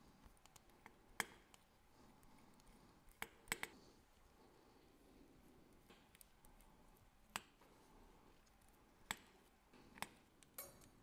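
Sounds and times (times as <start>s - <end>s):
patter of small clicks: 2.6s - 3.8s.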